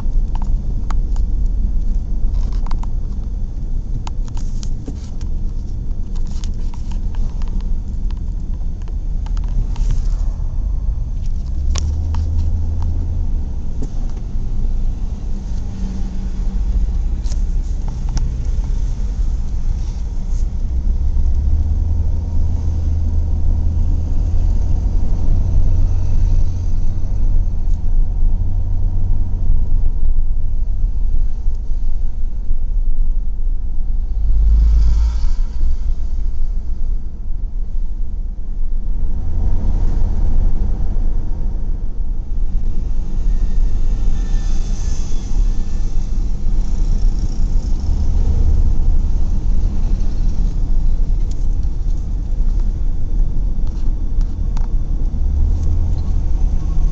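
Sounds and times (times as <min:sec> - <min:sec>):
car road noise: 0:00.0 - 0:56.9.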